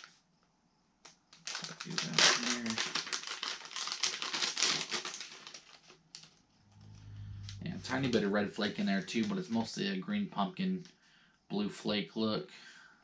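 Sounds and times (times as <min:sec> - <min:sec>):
plastic bag crinkling: 0:01.3 - 0:06.9.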